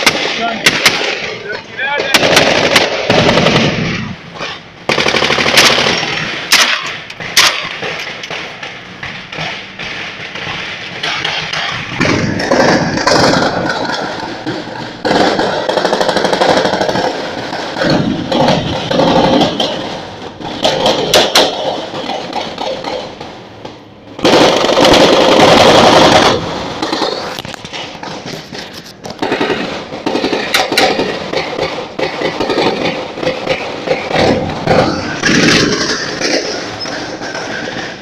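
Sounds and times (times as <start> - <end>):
single gunshots: 0.0 - 4.1
automatic gunfire bursts: 2.0 - 3.8, 4.9 - 8.4, 24.2 - 27.1.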